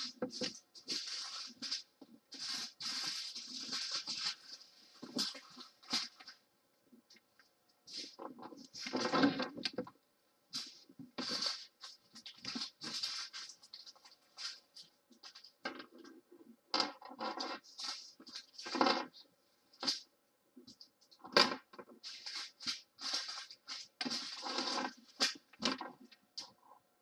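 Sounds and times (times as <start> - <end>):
plastic bags crinkling: 0.0 - 6.4, 10.6 - 15.5, 22.0 - 26.2.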